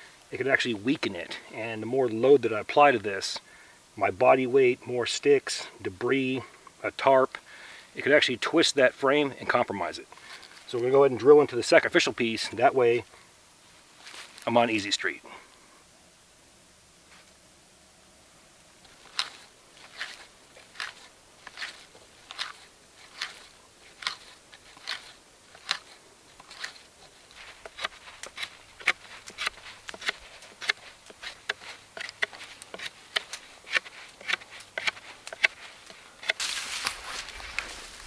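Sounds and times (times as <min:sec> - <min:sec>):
hand tools scraping green wood: 0:18.8 - 0:38.0
knife whittling a stick: 0:27.5 - 0:36.4.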